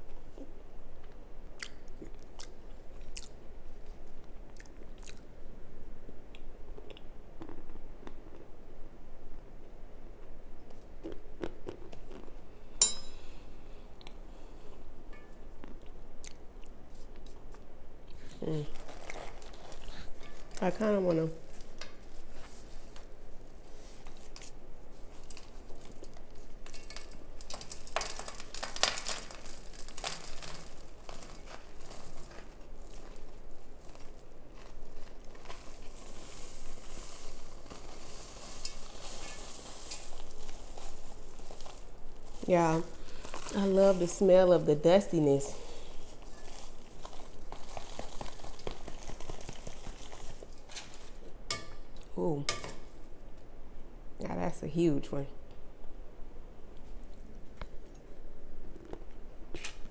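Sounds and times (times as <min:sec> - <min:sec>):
metal spoon scraping cornstarch: 0:35.5 - 0:40.9
cardboard box crinkling: 0:46.0 - 0:51.2.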